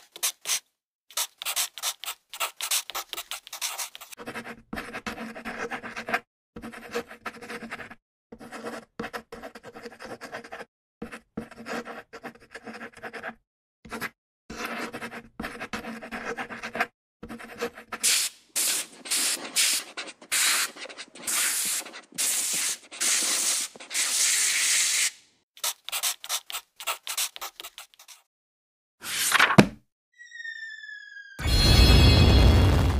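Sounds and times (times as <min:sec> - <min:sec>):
pencil scratching on paper: 0:00.0 - 0:24.8, 0:25.6 - 0:28.3.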